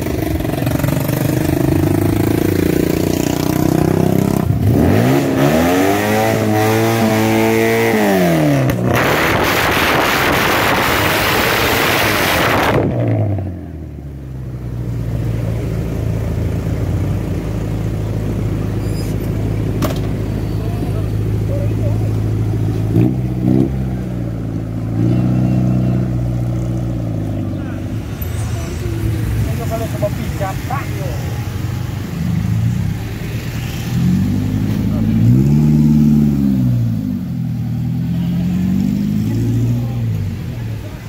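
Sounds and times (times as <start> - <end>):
minibus engine revving: 0.0 - 13.6, 31.9 - 41.0.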